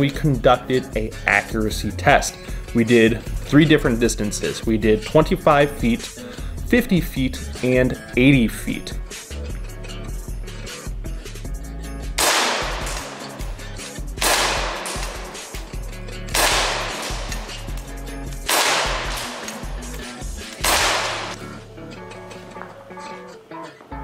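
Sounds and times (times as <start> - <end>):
background music: 0.0 - 24.0
airsoft pistol shots: 12.2 - 21.5.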